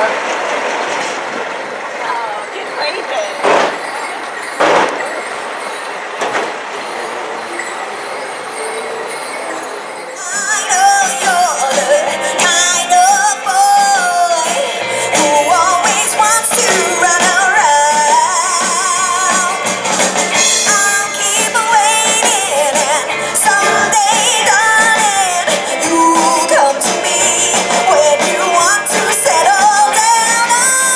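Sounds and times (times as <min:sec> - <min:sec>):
woman singing lead: 0:10.2 - 0:19.8, 0:20.4 - 0:30.9
electric guitar: 0:10.2 - 0:30.9
live rock band playing: 0:10.2 - 0:30.9.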